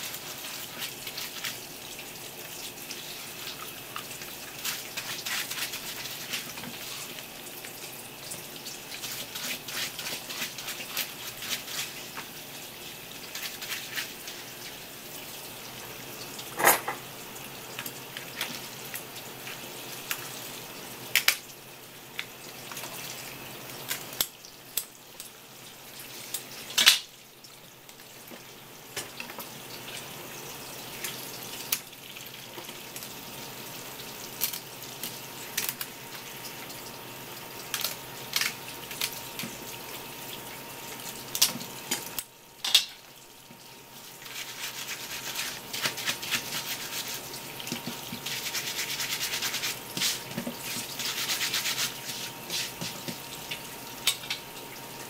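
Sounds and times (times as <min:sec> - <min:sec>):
tap water running from hose: 0:00.0 - 0:55.0
brush scrubbing shell: 0:09.0 - 0:12.0, 0:44.2 - 0:53.2
kitchen scissors snipping shell: 0:34.4 - 0:35.9, 0:37.7 - 0:39.5.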